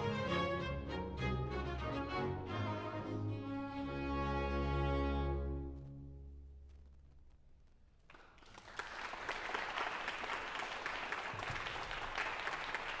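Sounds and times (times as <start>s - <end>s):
orchestra low notes: 0.0s - 6.9s
audience applause: 8.1s - 13.0s.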